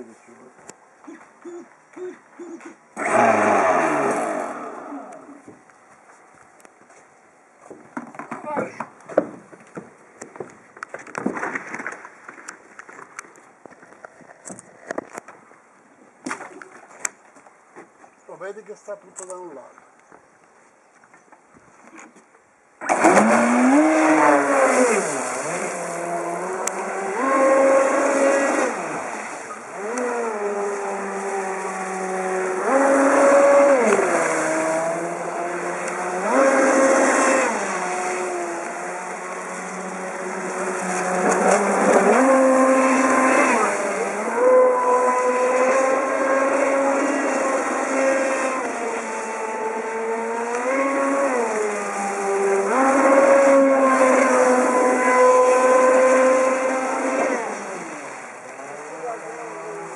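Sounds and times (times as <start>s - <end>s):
speedboat motor whining: 2.6s - 5.5s, 22.8s - 59.9s.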